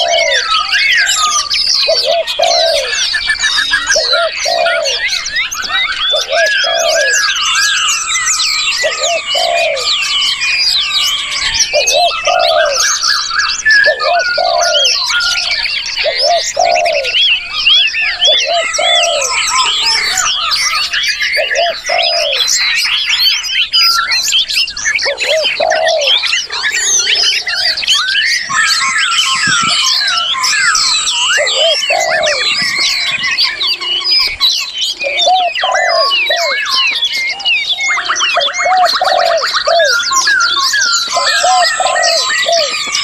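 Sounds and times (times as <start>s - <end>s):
low cooing: 0.0s - 0.6s, 1.9s - 3.0s, 3.7s - 5.0s, 6.2s - 7.3s, 8.8s - 9.9s, 11.7s - 12.8s, 13.8s - 15.0s, 16.0s - 17.2s, 18.3s - 20.3s, 21.4s - 22.5s, 25.0s - 26.2s, 31.3s - 34.0s, 35.0s - 36.7s, 38.4s - 40.0s, 41.1s - 43.0s
songbirds chorus: 0.0s - 43.0s.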